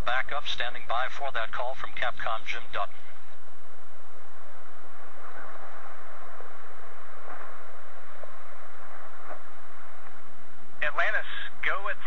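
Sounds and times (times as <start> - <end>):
faint hum: 0.0 - 12.0
radio hiss: 0.0 - 12.0.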